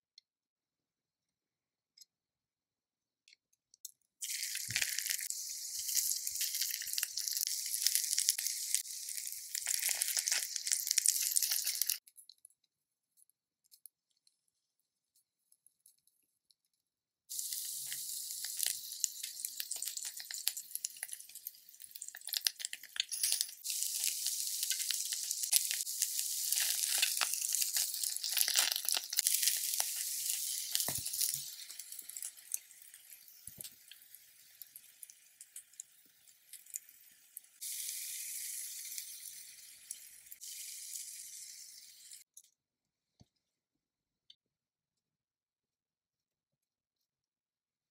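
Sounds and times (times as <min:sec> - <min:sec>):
oil sizzling in a frying pan: 0:04.2 - 0:12.0, 0:17.3 - 0:42.3.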